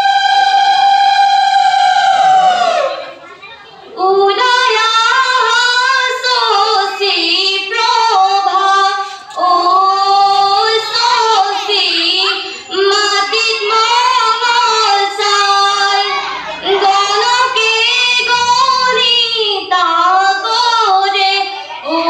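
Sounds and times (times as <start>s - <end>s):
girls singing together: 0.0s - 3.2s, 3.9s - 22.0s.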